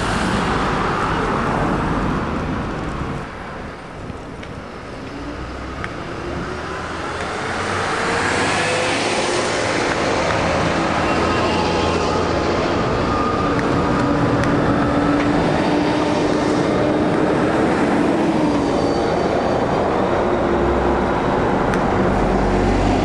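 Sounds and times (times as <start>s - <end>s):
bus diesel engine passing: 0.0s - 3.7s, 4.6s - 23.0s
street traffic: 0.0s - 23.0s.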